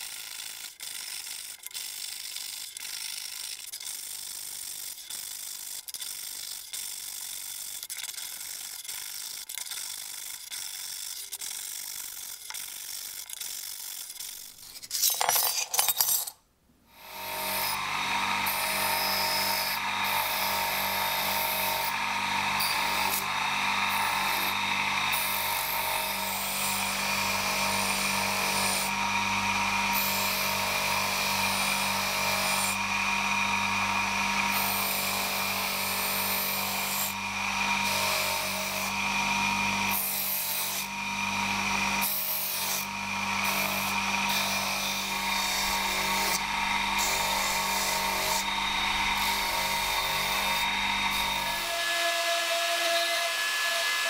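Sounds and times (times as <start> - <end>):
knife blade grinding: 0.4 - 16.4, 45.6 - 51.7
bench grinder motor hum: 16.9 - 54.0.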